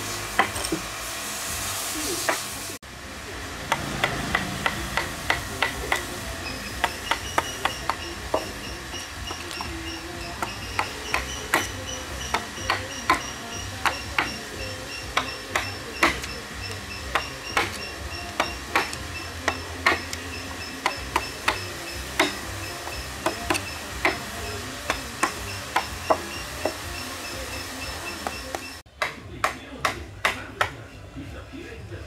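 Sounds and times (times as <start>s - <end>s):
mallet striking a chisel: 3.7s - 30.8s.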